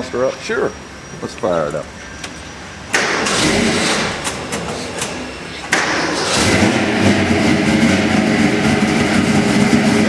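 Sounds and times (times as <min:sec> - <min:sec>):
engine starting and running: 0:02.2 - 0:10.0.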